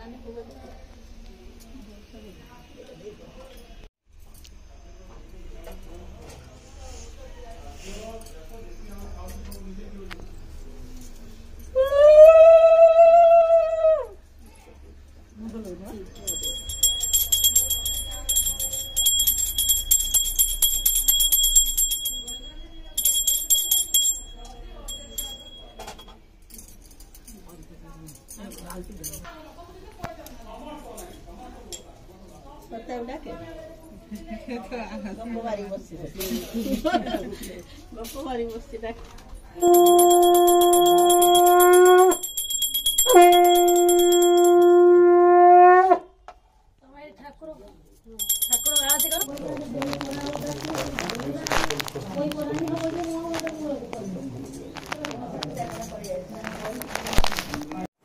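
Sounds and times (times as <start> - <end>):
hand bell ringing rapidly: 16.1 - 26.0, 39.6 - 44.8, 48.2 - 49.4
conch shell blasts: 39.6 - 46.2.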